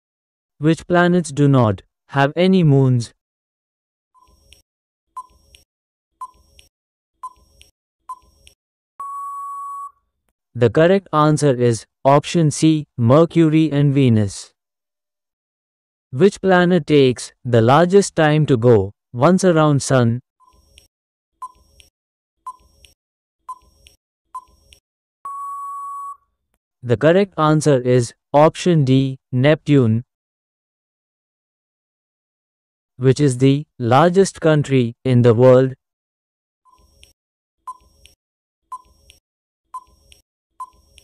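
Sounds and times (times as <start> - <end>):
long steady beep: 9.0 - 10.0, 25.2 - 26.2
short beeps: 9.0 - 10.0, 25.3 - 26.2.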